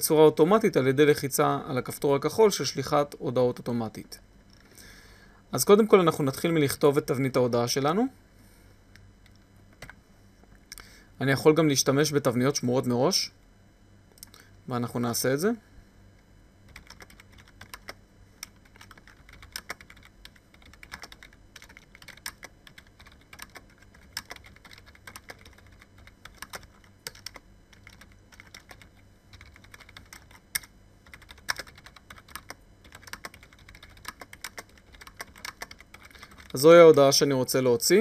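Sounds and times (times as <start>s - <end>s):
computer keyboard key clicks: 16.7s - 25.6s, 26.3s - 36.5s.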